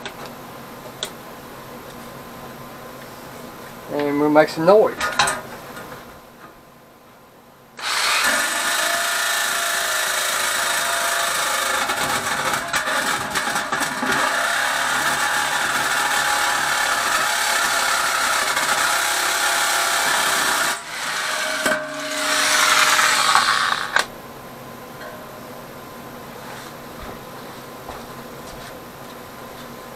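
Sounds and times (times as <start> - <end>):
jigsaw cutting sheet metal: 7.8 - 24.1.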